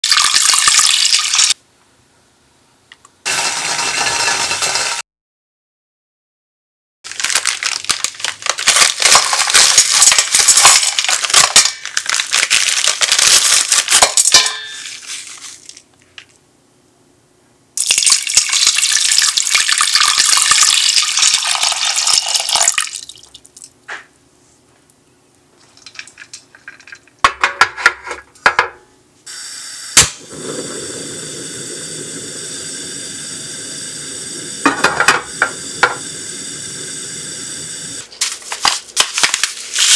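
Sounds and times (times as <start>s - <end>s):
water pouring into pot: 0.0s - 1.6s, 3.3s - 5.0s, 17.8s - 23.4s, 25.8s - 27.1s
sugar lumps clattering into pot: 7.3s - 15.8s
steady hiss of heating: 29.1s - 39.9s.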